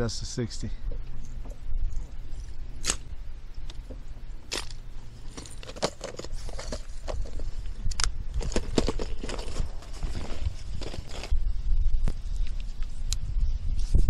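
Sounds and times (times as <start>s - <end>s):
low steady rumble: 0.0s - 14.0s
plastic lures clattering: 4.5s - 7.5s, 8.4s - 10.1s.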